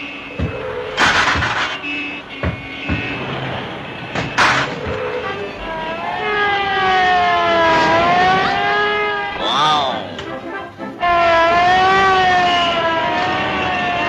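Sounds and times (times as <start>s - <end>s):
cartoon car noise: 0.0s - 14.0s
sharp knocks: 0.3s - 5.2s
long pitched wail: 4.9s - 10.1s, 11.0s - 14.0s.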